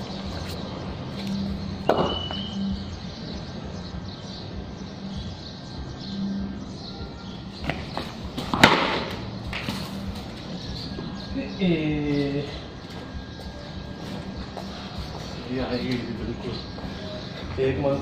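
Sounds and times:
sharp knocks: 1.8s - 2.4s.

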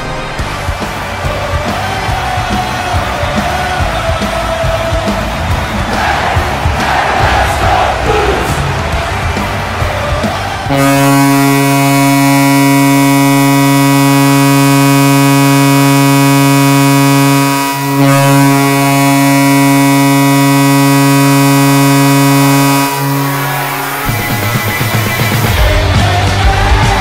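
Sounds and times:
arena goal horn blasts: 10.7s - 25.7s.

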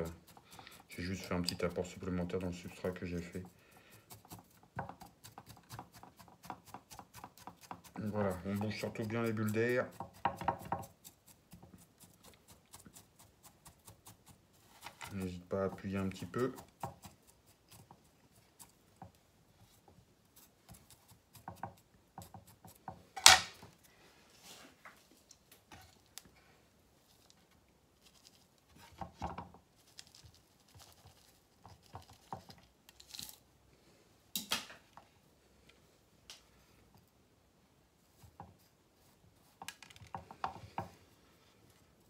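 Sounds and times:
chopstick scratching granular soil: 0.0s - 18.8s, 29.8s - 33.4s
knocks and scrapes on ceramic pot: 2.6s - 13.0s, 14.0s - 18.1s, 20.6s - 23.4s, 28.7s - 29.7s, 30.7s - 32.6s, 39.5s - 41.0s.

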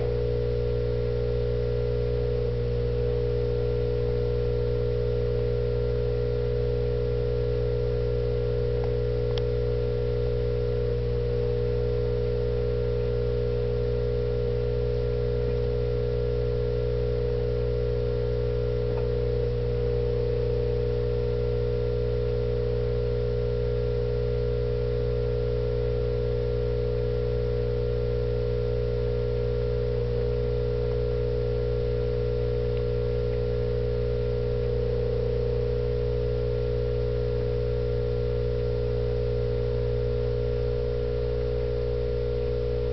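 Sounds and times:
steady tonal hum: 0.0s - 23.0s
faint ticks: 8.8s - 9.5s.

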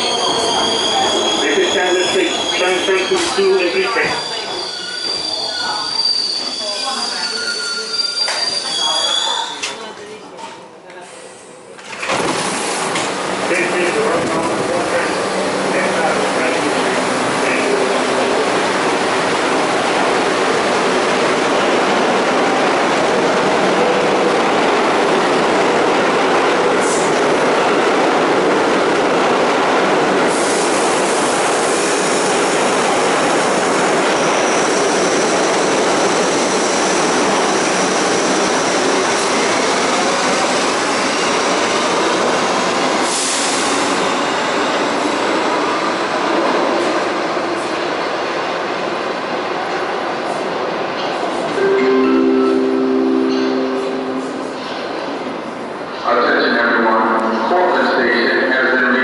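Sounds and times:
subway train rumbling: 0.0s - 59.0s
high-pitched wheel squeal: 4.0s - 9.8s.

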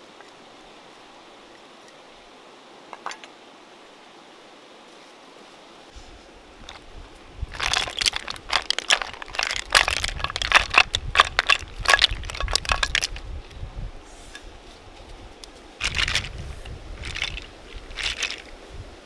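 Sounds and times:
snail shells clattering: 6.6s - 6.9s, 7.5s - 13.2s, 15.8s - 16.4s, 17.0s - 18.6s.

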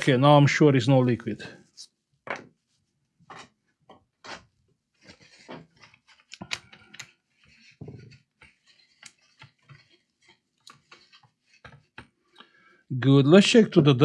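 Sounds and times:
small tools scraping circuit board: 4.2s - 12.4s.

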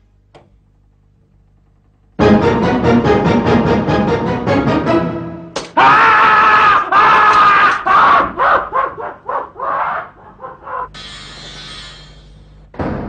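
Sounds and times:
person screaming: 5.8s - 8.5s.

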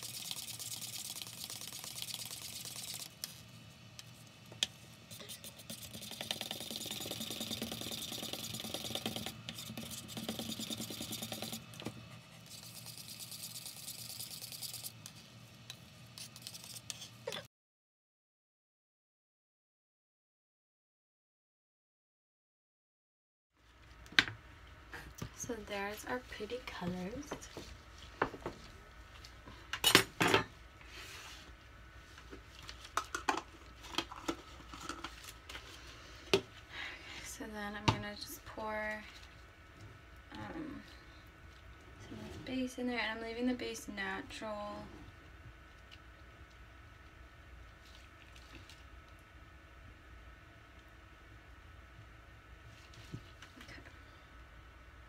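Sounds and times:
steady low hum: 0.0s - 17.2s, 23.7s - 55.0s
spoon scraping in small cups: 5.1s - 17.4s
utensils clattering on tabletop: 29.8s - 30.5s.

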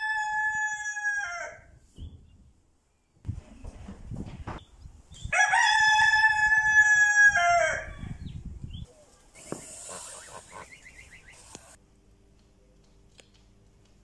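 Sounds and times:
rooster crowing: 0.0s - 1.7s, 5.4s - 8.2s.

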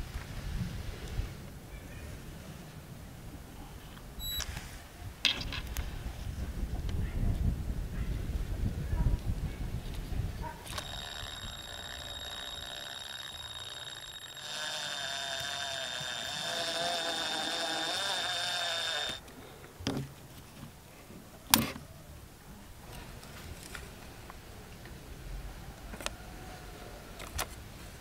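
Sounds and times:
drill motor whining: 10.7s - 19.2s.

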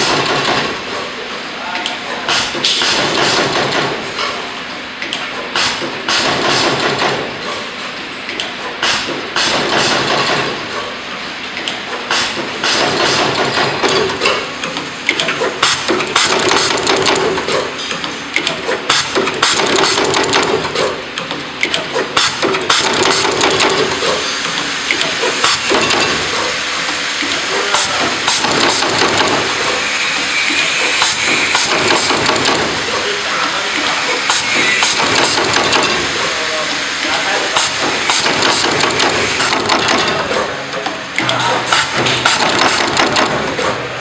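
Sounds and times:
machine clacking and knocking: 0.0s - 1.2s, 2.2s - 44.0s
air hissing: 25.2s - 39.8s.

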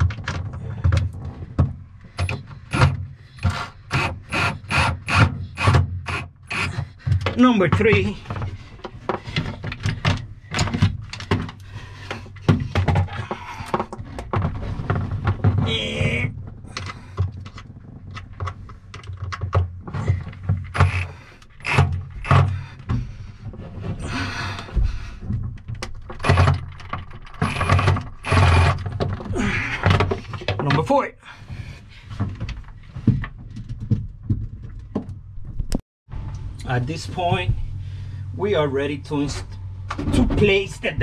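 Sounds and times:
cordless drill driving screws: 2.7s - 6.8s, 20.7s - 22.5s, 27.4s - 28.8s
knocks and clicks from handling: 16.7s - 23.2s.

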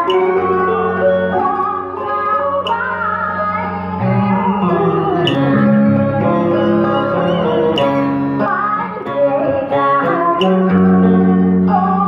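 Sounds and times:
plucked strings accompaniment: 0.0s - 12.0s
woman singing into microphone: 0.0s - 12.0s.

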